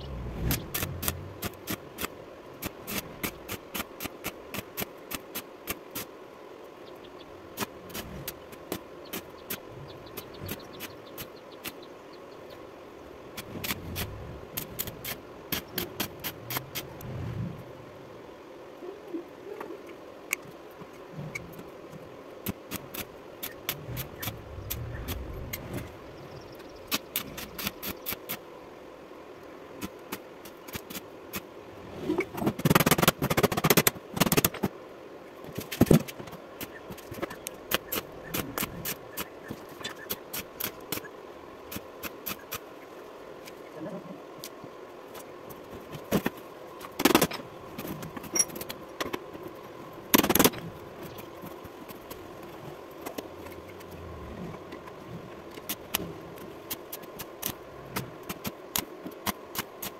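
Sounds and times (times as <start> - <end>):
faint steady hum: 0.0 - 59.9
welding arc crackling: 0.4 - 6.1.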